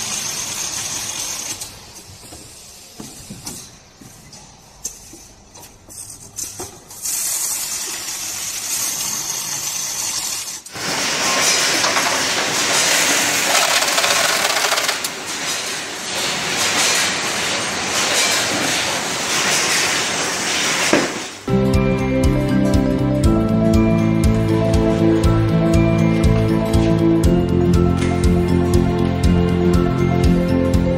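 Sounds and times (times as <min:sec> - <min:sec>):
carton sealing machines running: 0:00.0 - 0:02.1, 0:07.0 - 0:21.5.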